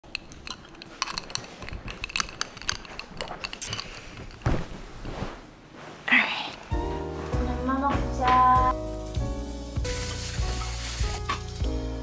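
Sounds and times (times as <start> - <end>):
ice clinking in glass jar: 0.0 - 4.4.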